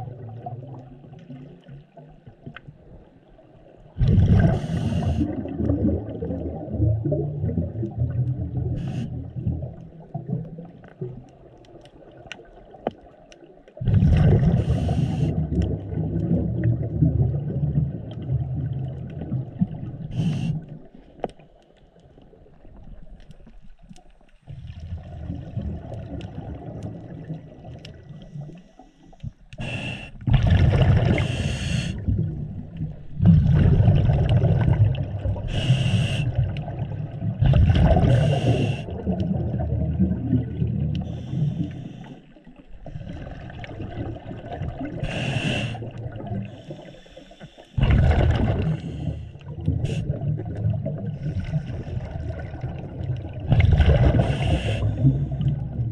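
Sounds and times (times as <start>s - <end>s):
exhaled bubbles rumbling: 0.0s - 47.0s, 47.8s - 55.9s
regulator hissing inhalations: 4.6s - 5.3s, 20.2s - 20.6s, 28.3s - 30.2s, 31.2s - 32.0s, 35.5s - 36.4s, 38.2s - 38.9s, 45.0s - 45.8s, 54.2s - 55.1s.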